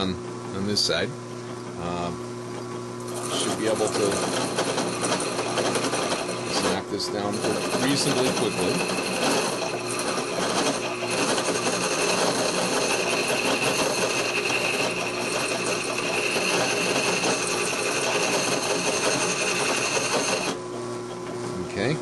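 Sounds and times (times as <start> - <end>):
steady motor hum: 0.0 - 22.0
rasp scraping wood: 3.1 - 20.6.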